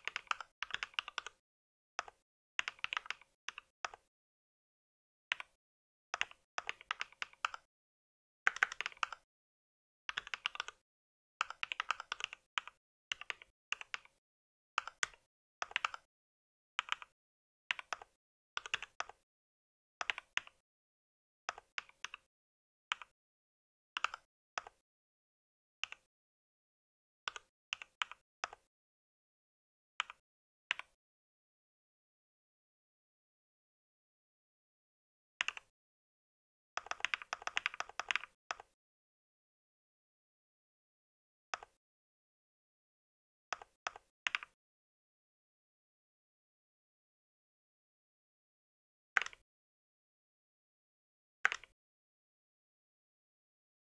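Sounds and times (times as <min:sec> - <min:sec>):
mechanical keyboard typing: 0:00.0 - 0:01.4, 0:02.0 - 0:04.0, 0:06.2 - 0:07.7, 0:08.5 - 0:09.2, 0:10.1 - 0:10.8, 0:11.4 - 0:14.2, 0:14.8 - 0:16.1, 0:17.7 - 0:19.2, 0:36.8 - 0:38.7, 0:49.2 - 0:49.4.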